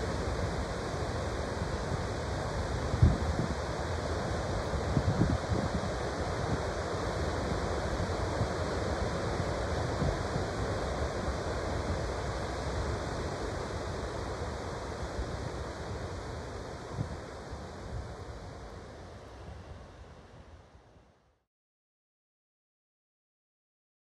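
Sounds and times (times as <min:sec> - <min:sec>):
surf breaking on a beach: 0:00.1 - 0:18.7
wind on microphone: 0:01.3 - 0:18.8.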